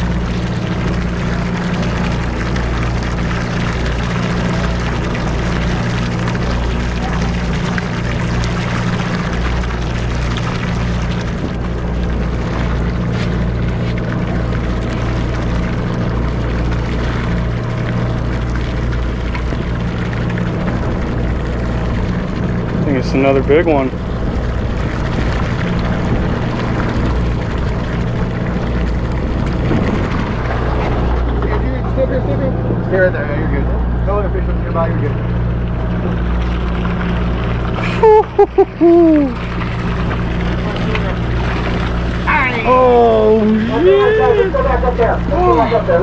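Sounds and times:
boat engine droning: 0.0s - 46.0s
water washing along hull: 0.0s - 46.0s.

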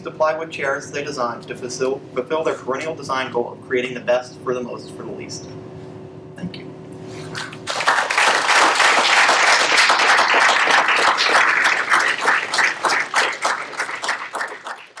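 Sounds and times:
audience applauding: 7.3s - 15.0s.

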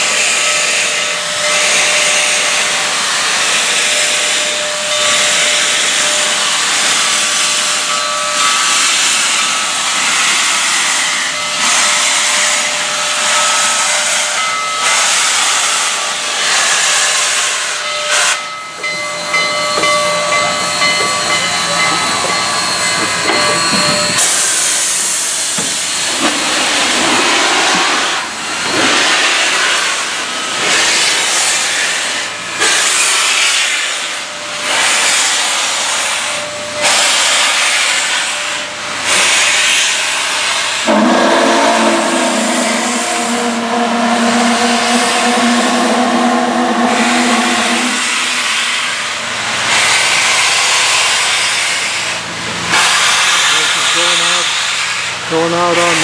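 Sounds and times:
steam locomotive chuffing: 0.0s - 56.0s
thin ringing tones: 17.8s - 24.8s.

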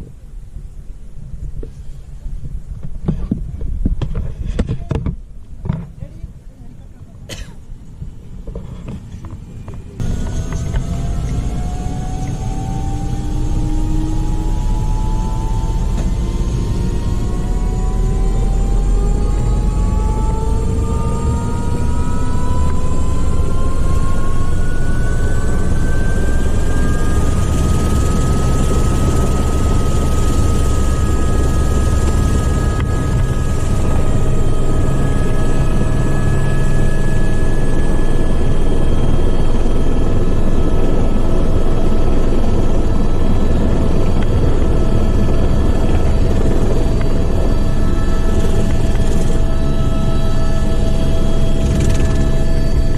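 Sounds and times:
low rotor rumble: 0.0s - 52.9s
turbine whine rising: 10.0s - 52.9s.

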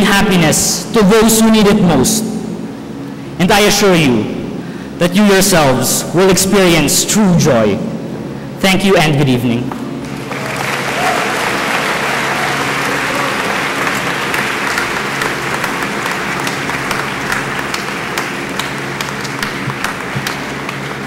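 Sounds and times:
large audience applauding: 10.0s - 21.0s.

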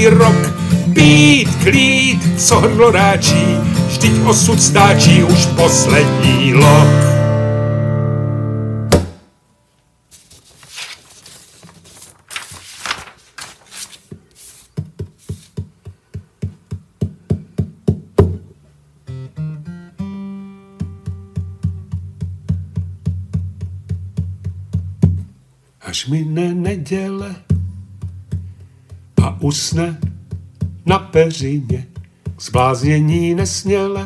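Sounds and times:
acoustic guitar chord ringing: 0.0s - 9.0s, 19.1s - 22.2s
fingerpicked acoustic guitar: 0.0s - 9.0s, 19.0s - 25.4s, 26.0s - 34.0s.

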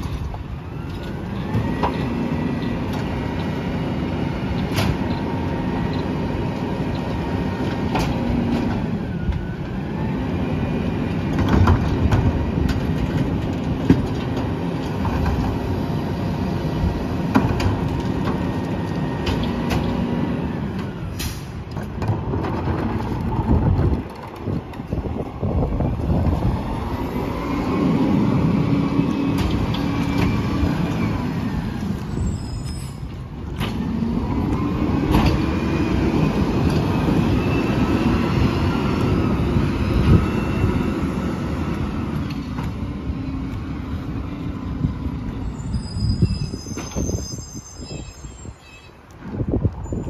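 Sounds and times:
engine whine: 0.0s - 47.2s
diesel truck engine revving: 25.4s - 32.3s, 33.4s - 45.4s
high-pitched squeal: 29.8s - 33.2s, 45.3s - 49.0s.

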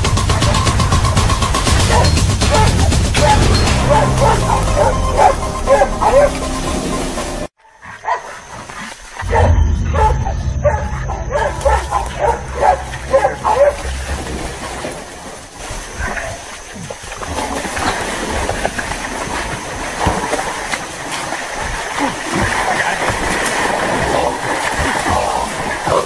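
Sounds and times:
dogs barking: 1.6s - 7.2s, 7.8s - 14.3s.

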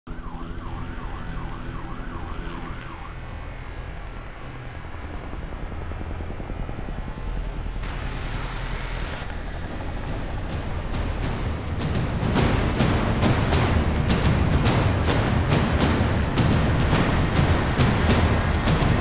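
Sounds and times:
siren wailing: 0.0s - 6.5s
helicopter rotor rumble: 0.1s - 19.0s
swell of noise: 7.8s - 19.0s.

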